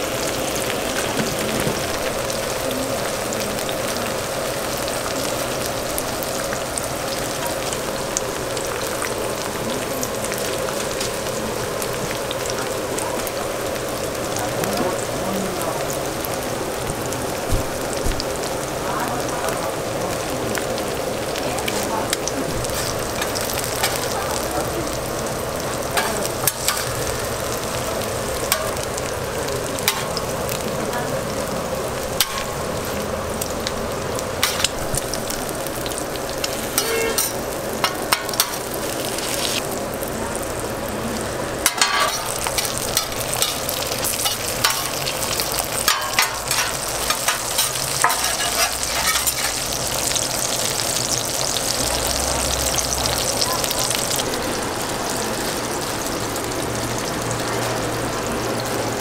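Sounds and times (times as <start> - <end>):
food sizzling on griddle: 0.0 - 59.0
metal spatulas scraping steel: 36.7 - 37.4, 45.9 - 49.6.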